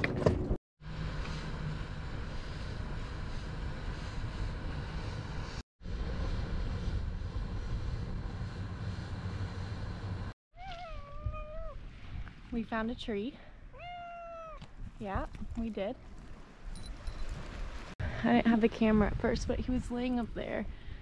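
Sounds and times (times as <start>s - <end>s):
cat meowing: 10.6s - 11.8s, 13.8s - 14.6s.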